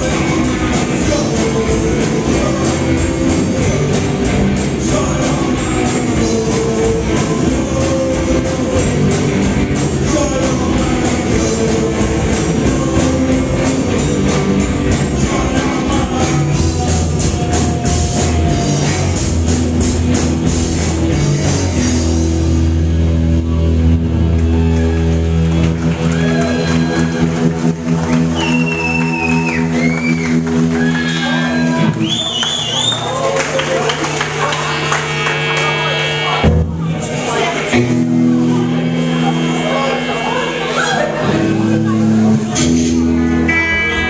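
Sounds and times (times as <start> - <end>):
person singing: 0.0 - 19.4
drum kit and cymbals: 0.0 - 23.0, 36.4 - 44.0
bass guitar: 0.0 - 44.0
distorted electric guitars: 0.0 - 44.0.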